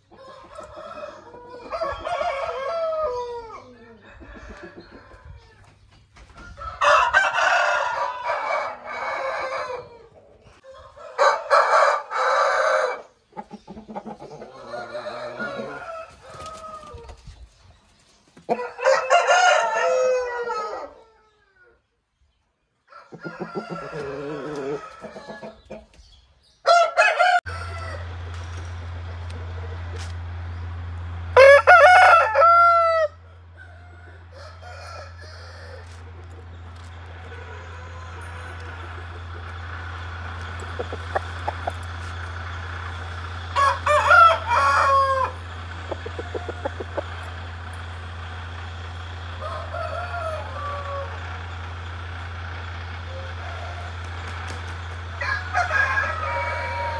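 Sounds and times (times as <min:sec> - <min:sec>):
roosters crowing: 0:00.0 - 0:17.7, 0:18.4 - 0:22.0, 0:22.8 - 0:25.9, 0:26.5 - 0:56.9
low hum: 0:27.5 - 0:31.7.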